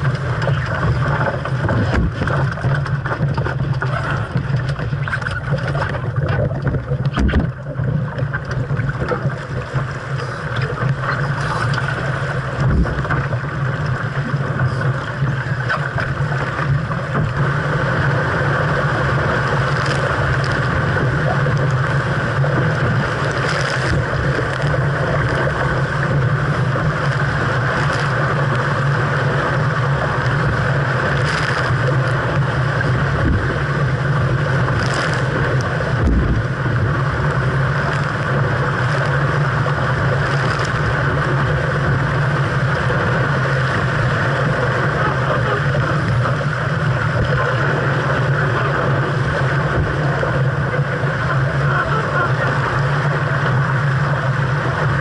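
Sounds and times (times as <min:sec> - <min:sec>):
water rushing along hull: 0:00.0 - 0:55.0
water splashes: 0:00.0 - 0:55.0
wind on microphone: 0:00.0 - 0:55.0.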